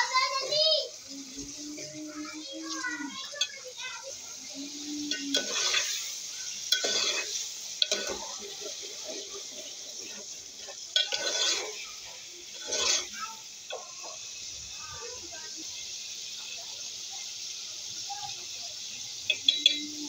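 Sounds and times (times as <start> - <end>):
food sizzling in pot: 0.0 - 20.0
spoon scraping metal pot: 5.1 - 6.0, 6.7 - 11.8, 12.5 - 13.2.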